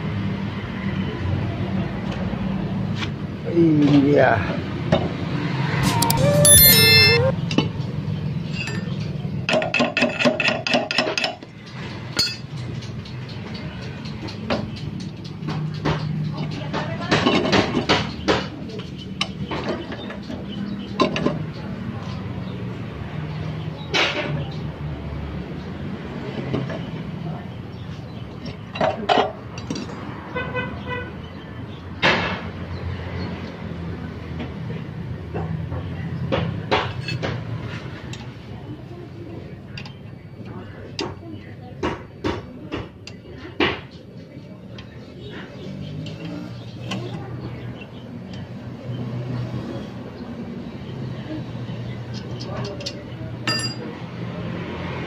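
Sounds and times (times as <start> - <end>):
bright chime with wavering tone: 5.8 - 7.3
pulsing horn toot: 5.8 - 7.3.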